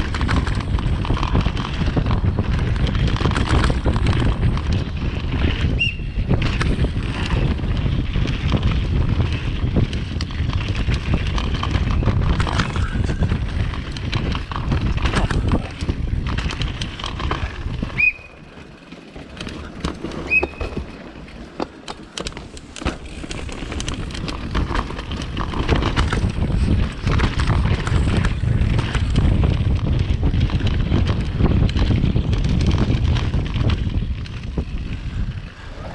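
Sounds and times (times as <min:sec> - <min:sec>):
mountain bike rolling and rattling: 0:00.0 - 0:35.9
wind buffeting microphone: 0:00.0 - 0:35.9
short high squeaks: 0:20.2 - 0:20.8.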